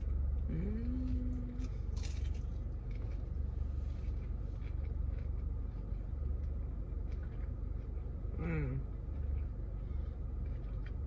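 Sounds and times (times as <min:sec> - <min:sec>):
steady low hum: 0:00.0 - 0:11.0
biting crispy food crunch: 0:01.1 - 0:11.0
chewing clicks: 0:04.0 - 0:08.1, 0:08.9 - 0:11.0.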